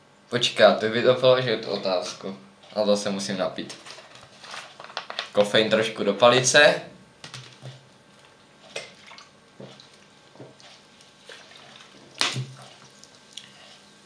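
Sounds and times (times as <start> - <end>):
liquid sloshing in plastic bottle: 7.3 - 13.9.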